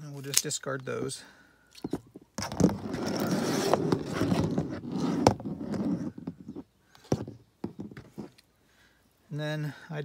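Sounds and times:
crackly rustling and scraping: 0:01.8 - 0:08.5.

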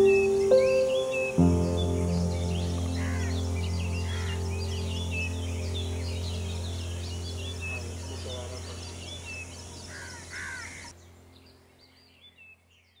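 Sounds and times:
birds chirping and calling: 0:00.0 - 0:12.8
steady low hum: 0:01.5 - 0:11.2.

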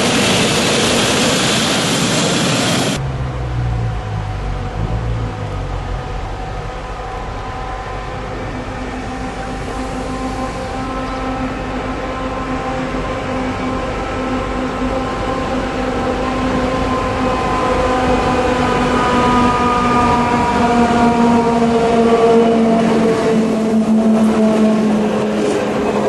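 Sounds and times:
wheels rumbling on track: 0:00.0 - 0:26.0
train motor whine: 0:01.6 - 0:26.0.

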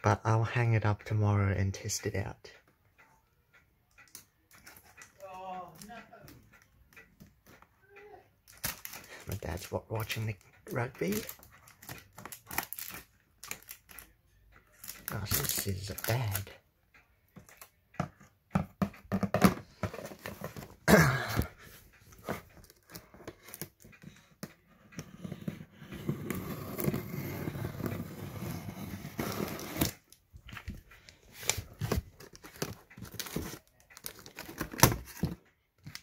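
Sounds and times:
tape scraping and crinkling: 0:08.5 - 0:09.1, 0:11.1 - 0:14.0, 0:26.1 - 0:30.0, 0:31.4 - 0:35.4.

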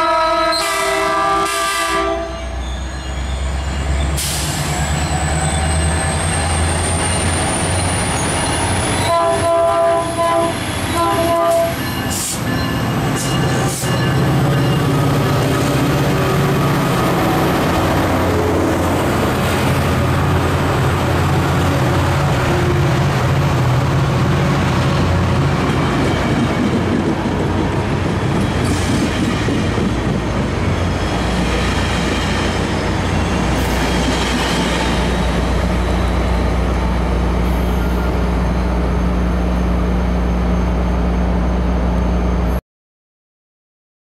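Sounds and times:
train wheels clattering on rails: 0:25.6 - 0:35.4.

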